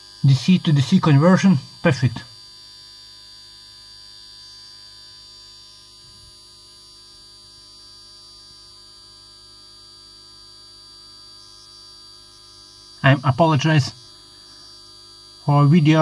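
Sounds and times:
high-pitched whine: 0.0s - 2.4s, 12.7s - 14.7s
electrical hum: 0.0s - 16.0s.

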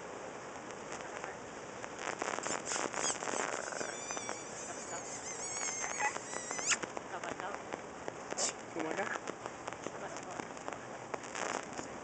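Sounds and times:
parrot squeaks and chirps: 2.4s - 6.8s
rising whistle: 2.5s - 6.8s.

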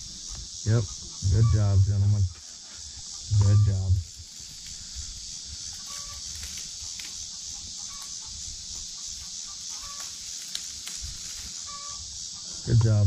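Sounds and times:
high-pitched insect drone: 0.0s - 13.0s
chickens clucking: 0.3s - 2.3s, 3.0s - 4.0s, 5.8s - 10.2s, 11.6s - 13.0s.

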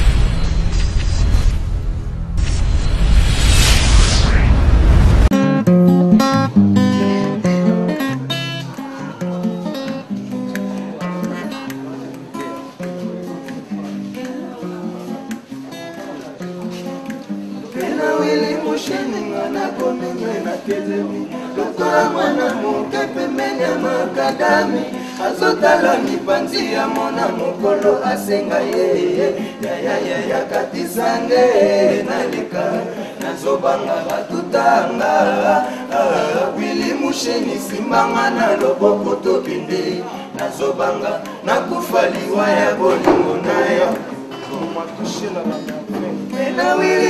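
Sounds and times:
acoustic guitar playing: 5.3s - 47.0s
men singing together: 17.7s - 47.0s.

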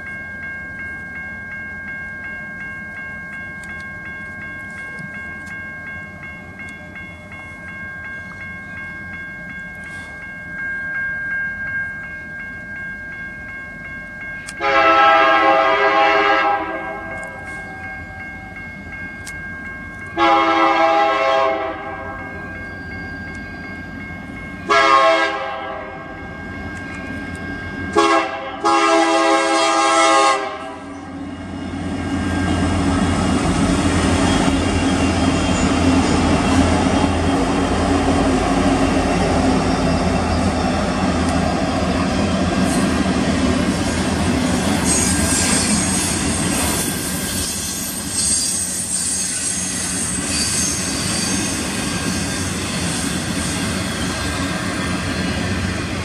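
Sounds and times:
train wheels on rails: 0.0s - 56.0s
locomotive horn blasts: 14.6s - 17.5s, 20.2s - 22.2s, 24.7s - 26.1s, 27.9s - 30.9s.

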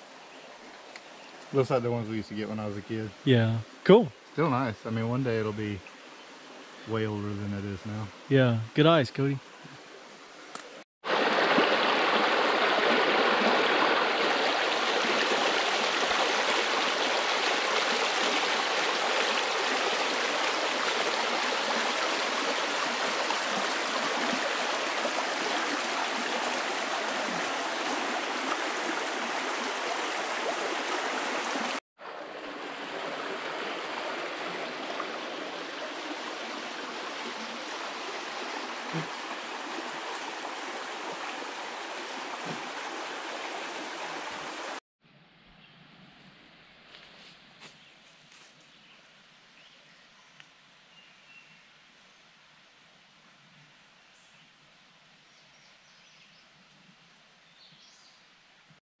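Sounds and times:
creek water rushing: 0.0s - 44.8s.

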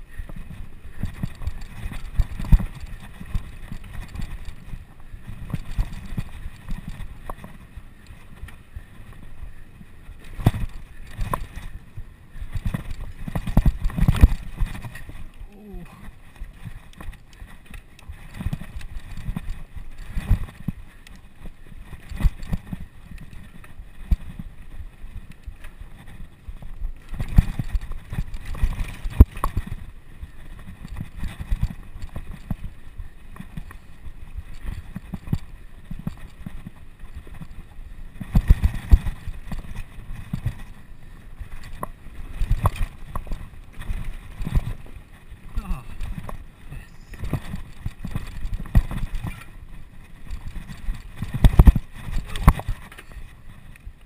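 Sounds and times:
bicycle rolling over rough ground: 0.0s - 54.0s.

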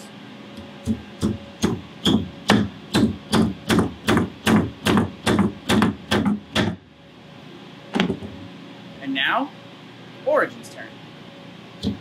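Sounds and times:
hammer hitting nail into wood: 1.2s - 6.8s.

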